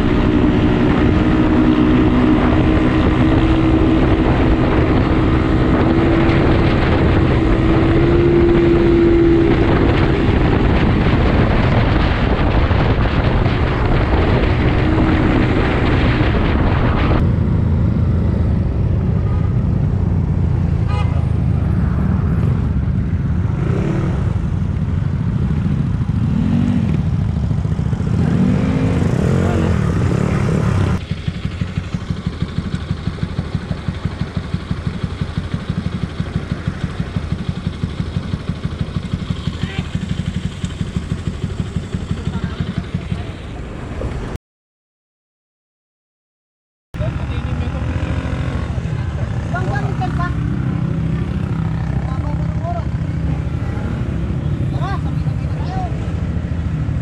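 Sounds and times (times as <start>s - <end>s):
wind rushing on microphone: 0.0s - 20.7s
scooter engine running: 24.4s - 43.9s.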